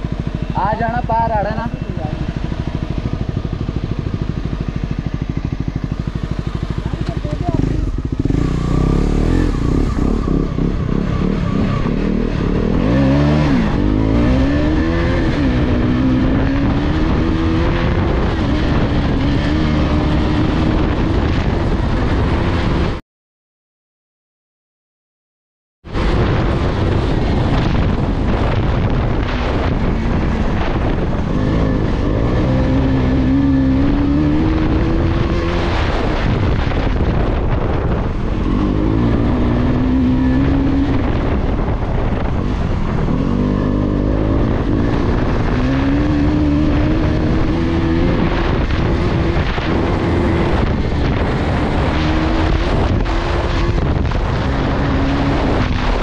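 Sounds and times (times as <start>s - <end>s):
motorcycle engine accelerating: 0.0s - 23.0s, 25.8s - 56.0s
wind noise on microphone: 0.0s - 23.0s, 25.8s - 56.0s.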